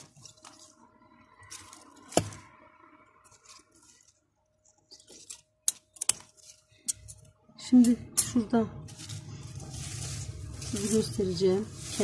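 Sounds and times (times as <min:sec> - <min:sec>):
faint rustling: 0:08.8 - 0:12.0.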